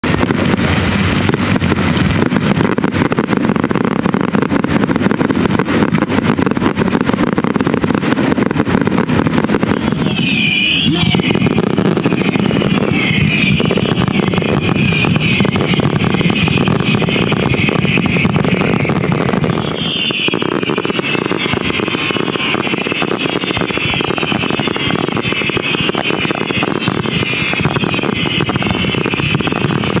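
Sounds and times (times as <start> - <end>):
fireworks crackles and bangs: 0.0 - 30.0.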